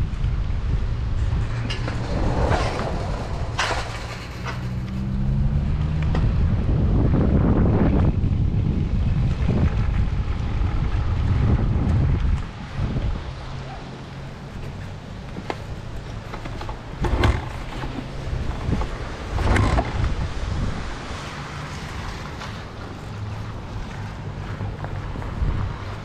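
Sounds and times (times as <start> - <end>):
low rumble: 0.0 - 13.3
wind buffeting microphone: 0.0 - 26.0.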